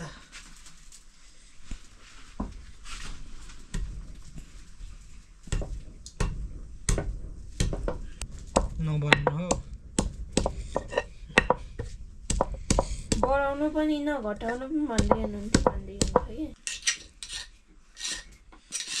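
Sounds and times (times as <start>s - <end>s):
knife chopping food: 15.0s - 16.4s.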